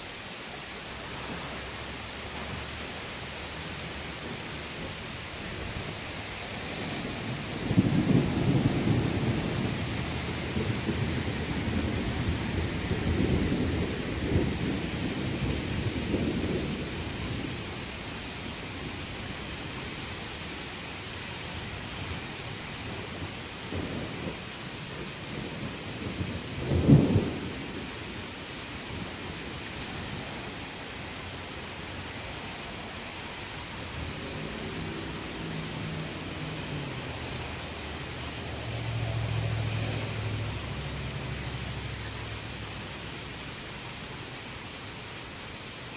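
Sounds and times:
steady rain: 0.0 - 45.9
thunder rolling: 5.5 - 17.9, 25.0 - 28.1.

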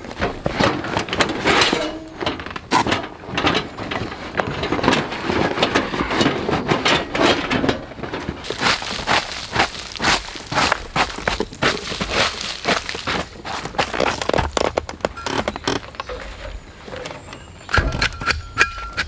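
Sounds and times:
dry leaves crunching underfoot: 8.4 - 14.3
canvas bag rustling: 8.4 - 14.4.

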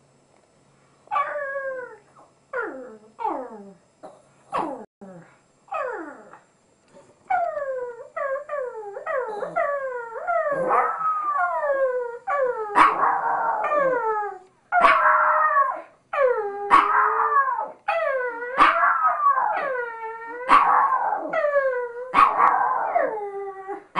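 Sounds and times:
dog howling: 7.4 - 23.9.

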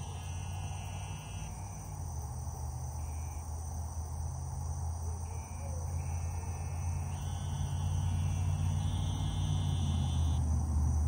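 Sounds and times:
short insect buzzes: 0.0 - 2.1, 5.3 - 10.4
crickets and insects trilling: 0.0 - 11.0
steady low hum: 0.0 - 11.0.

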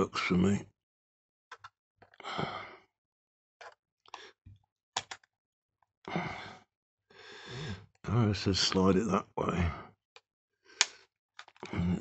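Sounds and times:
person sighing: 2.2 - 2.8, 6.1 - 6.6, 11.6 - 12.0
small plastic clicks and taps: 5.0 - 5.3.

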